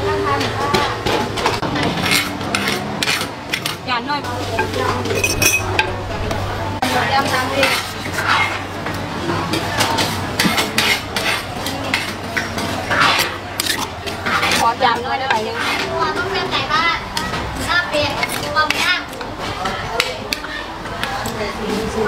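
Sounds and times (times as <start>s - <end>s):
metal utensils clinking and scraping: 0.7s - 6.0s, 6.8s - 22.0s
steady low hum: 4.3s - 7.0s.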